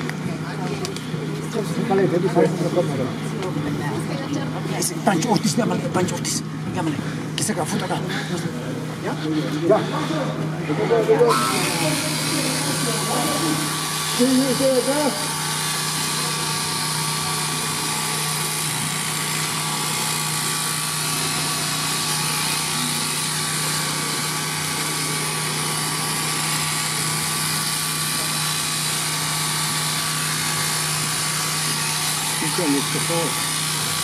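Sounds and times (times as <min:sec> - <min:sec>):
electric shearing machine whirring: 0:10.2 - 0:34.0.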